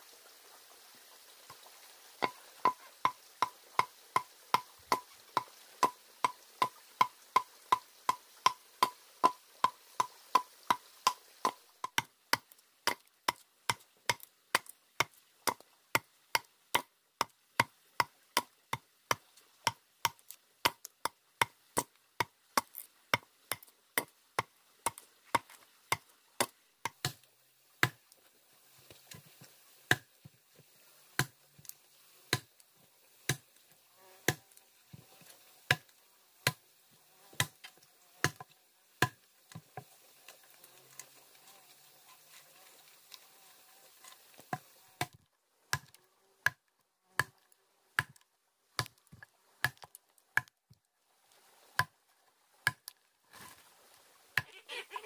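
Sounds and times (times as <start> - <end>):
adze chopping wood: 3.4 - 27.2, 27.8 - 28.0, 29.9 - 30.1, 31.2 - 31.4, 32.3 - 32.5, 37.3 - 37.6, 38.2 - 39.2, 47.2 - 47.4.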